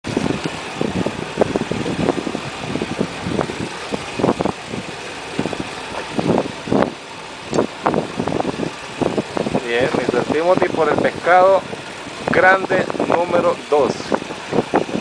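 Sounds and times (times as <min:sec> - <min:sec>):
boat slapping on choppy water: 0:00.0 - 0:15.0
outboard motor running: 0:00.0 - 0:15.0.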